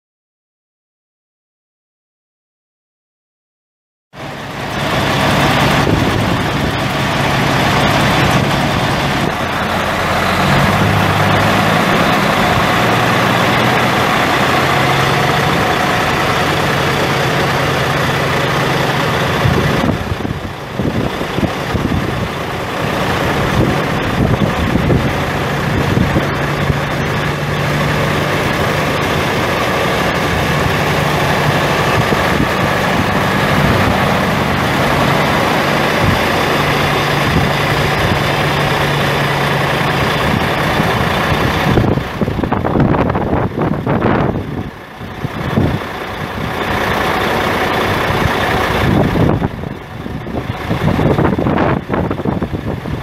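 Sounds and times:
diesel truck engine running: 0:04.2 - 0:53.0.

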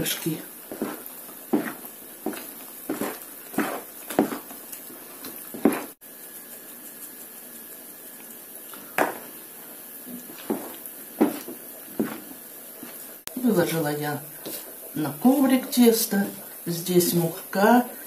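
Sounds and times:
spoon stirring wet dough: 0:00.6 - 0:09.4, 0:10.1 - 0:13.1.

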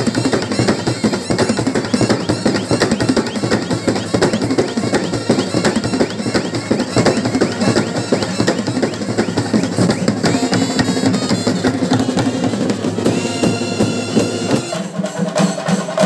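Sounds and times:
brass horns and clarinets: 0:00.0 - 0:16.0
rapid drumming: 0:00.0 - 0:16.0
high held brass note: 0:10.2 - 0:15.2.

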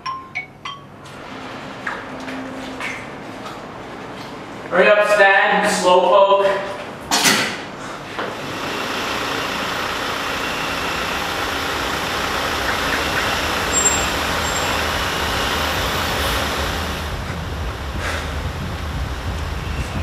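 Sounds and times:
bus engine idling: 0:08.4 - 0:19.6.

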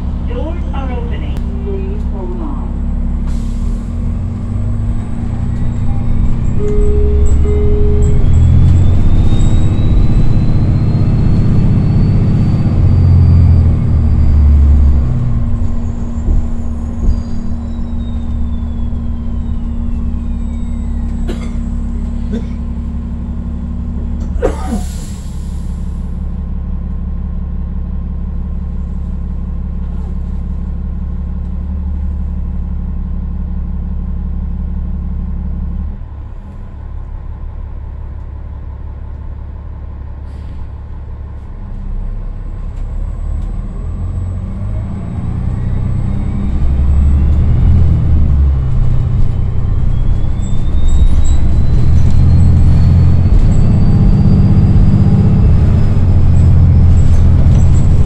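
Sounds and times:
bus diesel engine running: 0:00.0 - 0:58.0
air brake hiss: 0:03.2 - 0:04.0, 0:24.5 - 0:26.1, 0:40.2 - 0:40.7.

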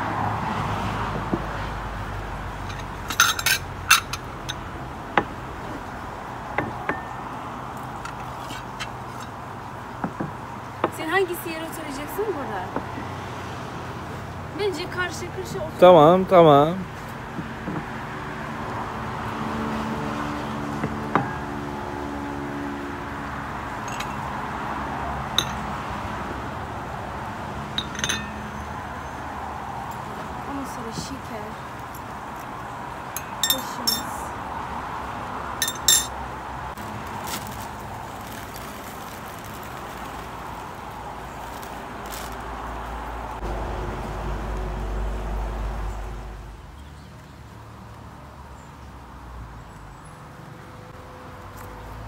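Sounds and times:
porcelain teacups clinking: 0:02.7 - 0:04.6, 0:23.9 - 0:24.2, 0:25.4 - 0:25.7, 0:27.8 - 0:28.4, 0:33.2 - 0:34.2, 0:35.6 - 0:36.2
plates clinking on table: 0:25.4 - 0:25.6, 0:27.8 - 0:28.4, 0:35.6 - 0:36.1
plate ringing: 0:27.8 - 0:28.5, 0:33.2 - 0:34.1, 0:35.6 - 0:36.1
bag rustling: 0:36.8 - 0:42.5.

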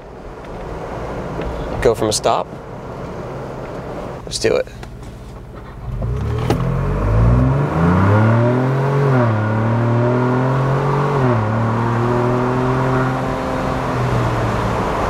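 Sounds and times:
car engine accelerating hard: 0:05.7 - 0:15.0.

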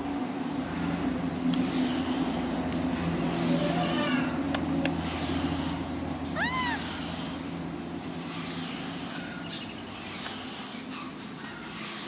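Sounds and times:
low motor hum: 0:00.0 - 0:12.0
baby monkey squeak: 0:06.4 - 0:07.0.

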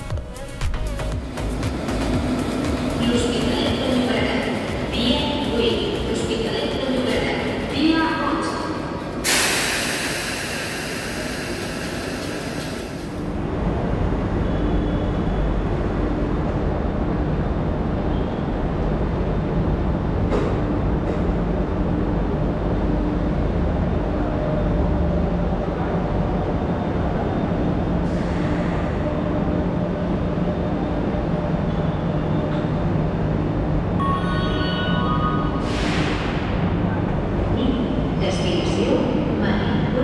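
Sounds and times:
train rumbling: 0:00.0 - 0:40.0
loud hiss: 0:09.2 - 0:13.3.

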